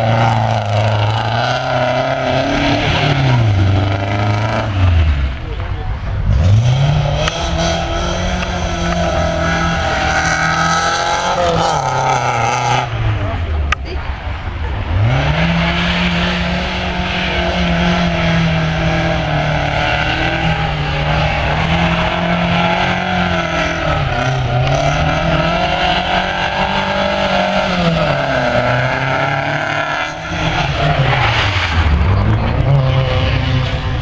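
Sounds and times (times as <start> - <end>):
rally car engine revving: 0.0 - 34.0.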